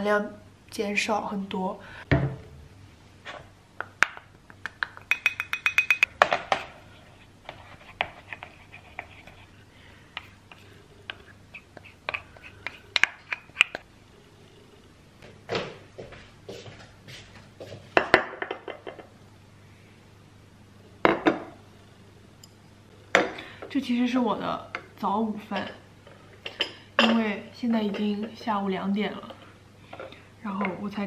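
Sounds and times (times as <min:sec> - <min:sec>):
spoon clinking in ceramic bowls: 0:05.0 - 0:06.1.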